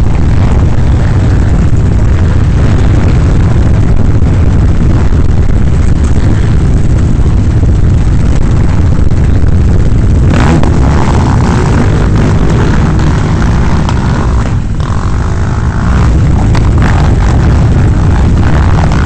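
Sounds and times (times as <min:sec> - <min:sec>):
quad bike engines rumbling: 0:00.0 - 0:19.0.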